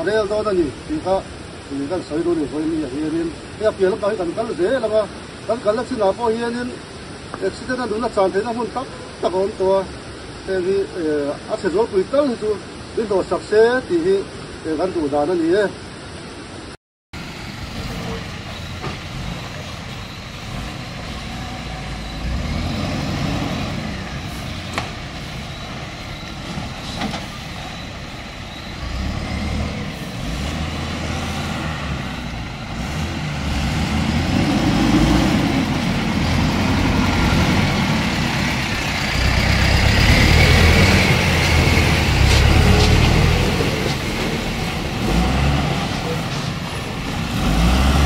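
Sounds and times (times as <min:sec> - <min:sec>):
heavy truck engine running: 0:17.2 - 0:48.0.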